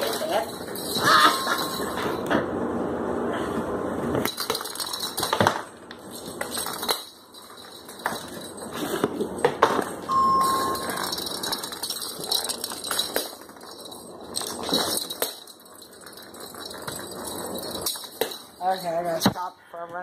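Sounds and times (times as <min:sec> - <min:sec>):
plastic ball clattering on hardwood floor: 0:04.1 - 0:07.2
short steady tone: 0:10.1 - 0:11.0.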